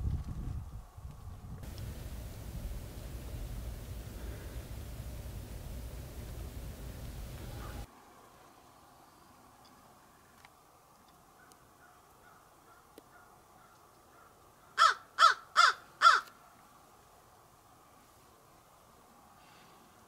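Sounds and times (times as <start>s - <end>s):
crow cawing: 11.8s - 16.3s.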